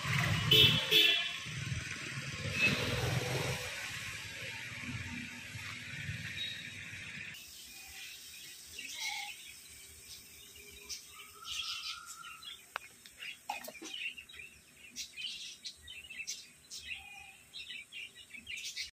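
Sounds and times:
small birds chirping: 5.7 - 18.9.

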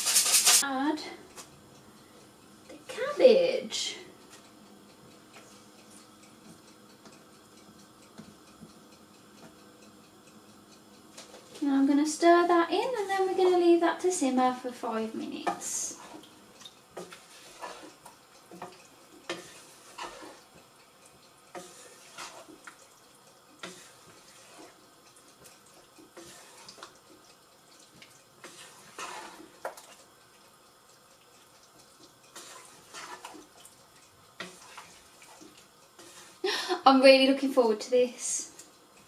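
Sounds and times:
wooden spoon stirring stew: 15.3 - 20.7, 21.4 - 36.4.

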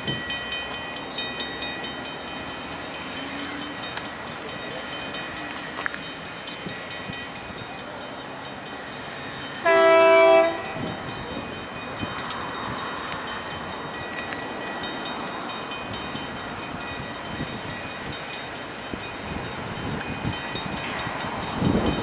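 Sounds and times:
level crossing bells ringing: 0.0 - 22.0
diesel locomotive horn: 9.6 - 11.0.

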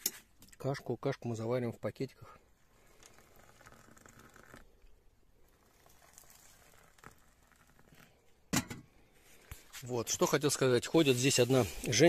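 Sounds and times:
water pouring into metal cups: 2.7 - 4.8, 5.4 - 8.3.

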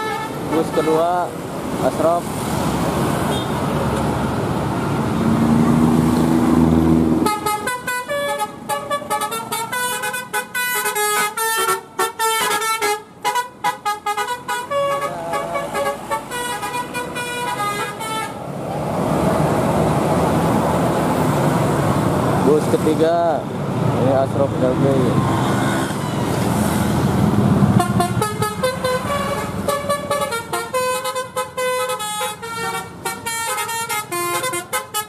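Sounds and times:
bus horn playing melody: 0.0 - 1.1, 7.2 - 18.4, 27.7 - 35.0
road and bus engine noise: 0.0 - 35.0.

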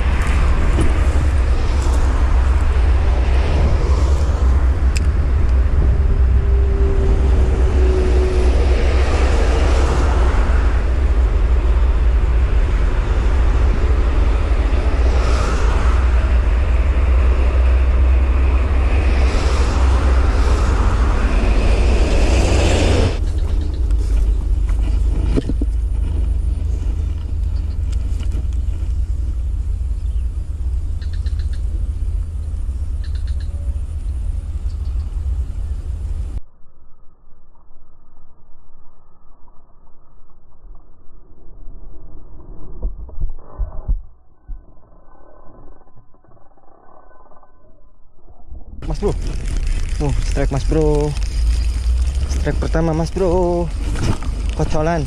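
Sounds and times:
vehicles passing: 0.0 - 36.4, 48.8 - 55.0
heavy low rumble: 0.0 - 55.0.

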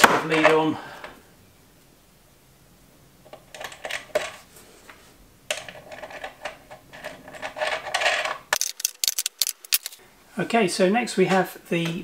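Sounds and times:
small metallic clicks and rattles: 5.5 - 10.0.

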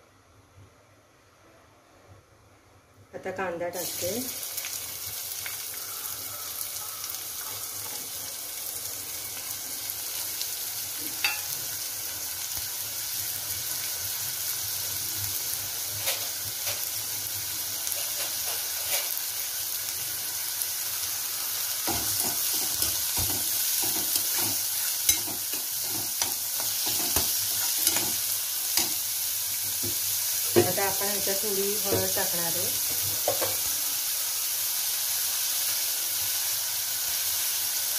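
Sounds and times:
onion sizzling in oil: 3.3 - 37.9
spoon scraping a pan: 17.9 - 19.2, 21.9 - 29.0.

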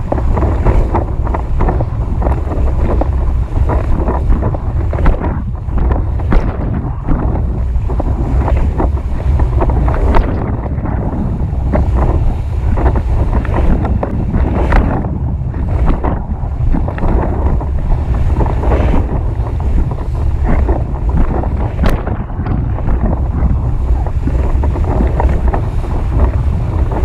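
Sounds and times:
wind buffeting microphone: 0.0 - 27.0
water splashing off board: 0.1 - 26.6.

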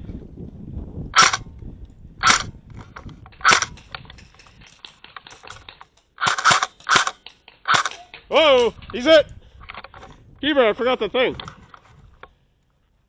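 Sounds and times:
airsoft gun shots: 1.2 - 1.4, 2.2 - 2.5, 3.3 - 3.9, 4.9 - 9.1.

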